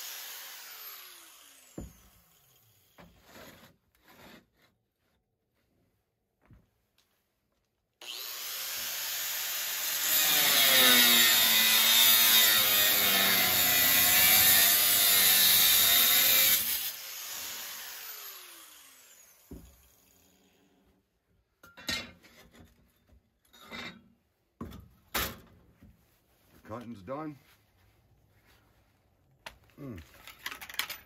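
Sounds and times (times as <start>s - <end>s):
power tool motor cutting: 0.0s - 3.0s, 8.0s - 20.6s.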